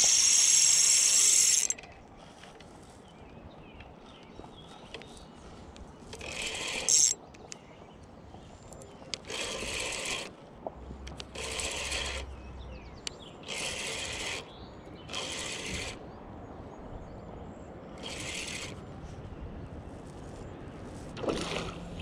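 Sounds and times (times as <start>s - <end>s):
fishing reel whirring: 0.0s - 1.8s, 6.1s - 7.2s, 9.2s - 10.3s, 11.2s - 12.4s, 13.4s - 14.5s, 15.1s - 16.0s, 18.0s - 18.8s.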